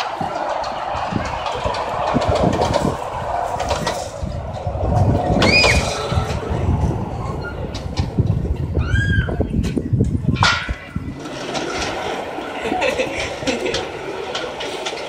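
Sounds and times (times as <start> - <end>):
clicks over rail joints: 0.0 - 8.8, 9.4 - 15.0
train wheels rumbling on rails: 0.0 - 15.0.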